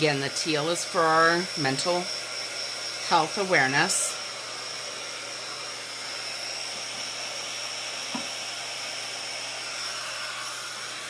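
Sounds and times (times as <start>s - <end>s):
heat tool fan whining: 0.0s - 11.0s.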